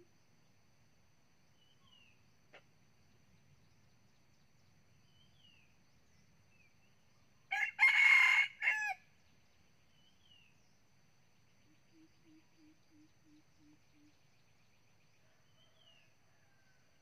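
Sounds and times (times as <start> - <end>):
rooster crowing: 7.5 - 9.0, 15.4 - 17.0.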